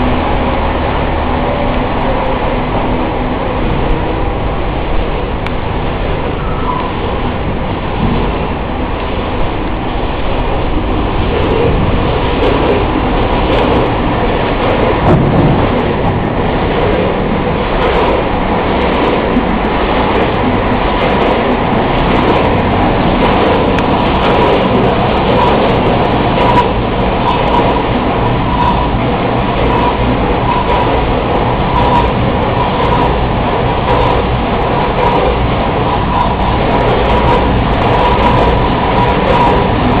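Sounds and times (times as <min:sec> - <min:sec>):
faint steady whine: 0:00.0 - 0:40.0
loud machinery din: 0:00.0 - 0:40.0.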